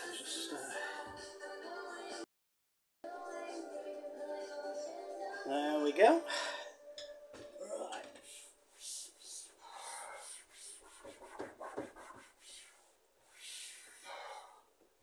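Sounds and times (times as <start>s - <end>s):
cloth wiping a cupboard: 8.3s - 14.2s.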